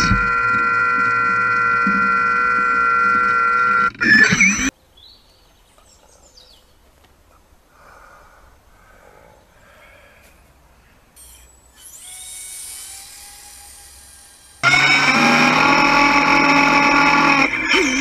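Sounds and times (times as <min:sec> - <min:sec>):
electric motor whine: 0:00.0 - 0:04.7, 0:11.2 - 0:18.0.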